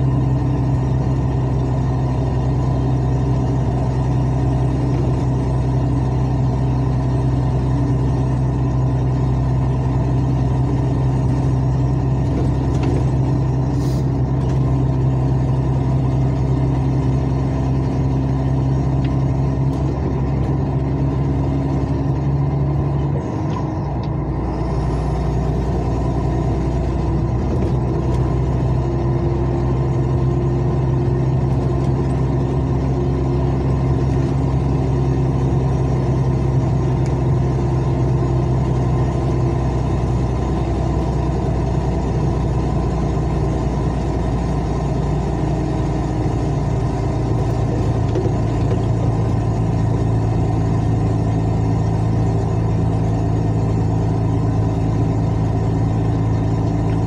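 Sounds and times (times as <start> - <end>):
diesel truck engine with loud exhaust drone: 0.0 - 57.0.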